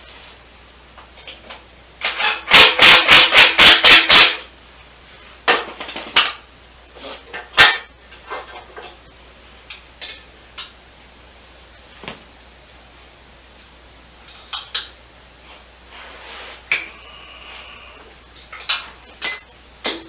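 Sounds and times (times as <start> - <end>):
metal clinks and knocks: 18.6 - 20.0.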